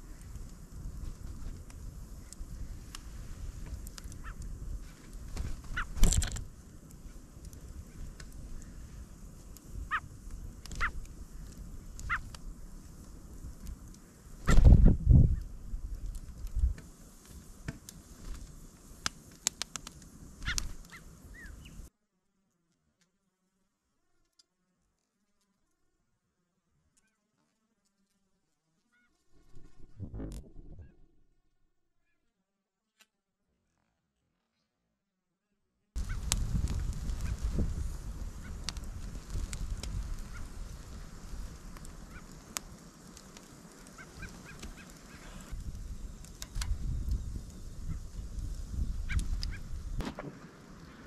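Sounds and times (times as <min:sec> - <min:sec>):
wind rumbling on microphone: 0:00.0 - 0:19.0, 0:29.4 - 0:31.3, 0:36.0 - 0:50.8
soft bird chirps: 0:20.5 - 0:21.9.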